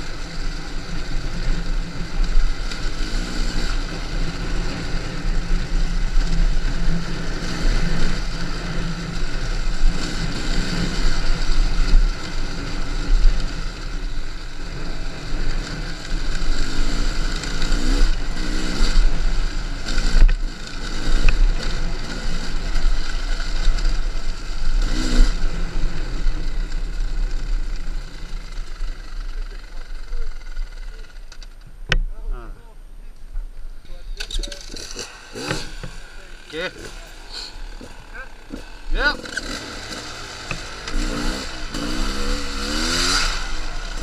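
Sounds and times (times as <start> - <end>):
motorcycle engine revving: 0.0 - 32.3, 33.8 - 44.0.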